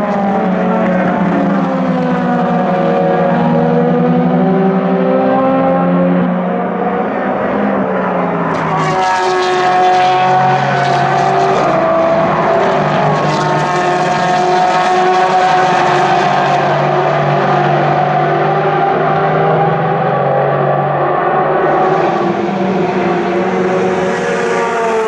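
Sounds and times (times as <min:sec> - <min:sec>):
racing car engines: 0:00.0 - 0:25.0.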